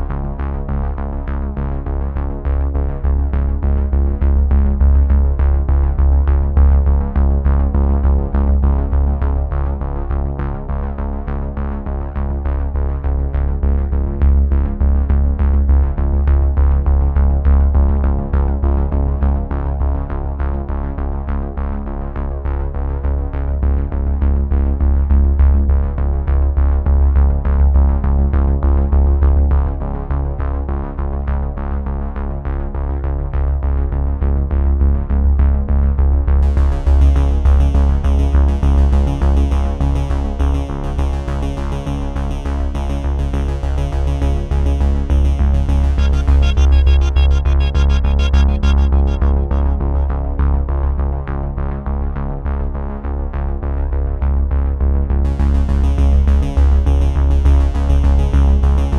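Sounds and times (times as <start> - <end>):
electronic music with heavy bass: 36.4 - 51.3, 55.3 - 58.9.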